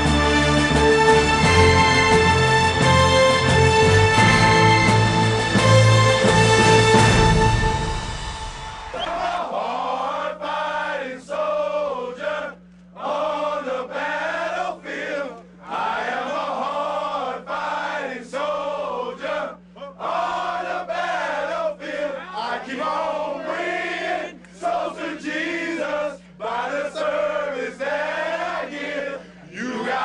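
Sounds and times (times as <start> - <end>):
low electrical hum: 7.4 - 30.0
men chanting in unison: 9.0 - 30.0.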